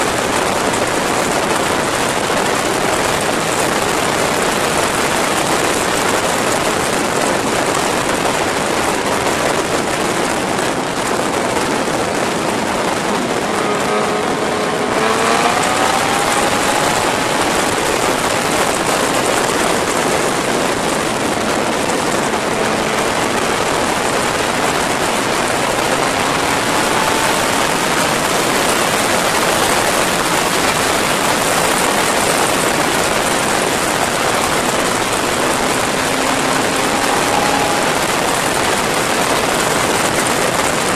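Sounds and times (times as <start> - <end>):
wind rushing over microphone: 0.0 - 40.9
faint motorcycle engine: 11.0 - 40.9.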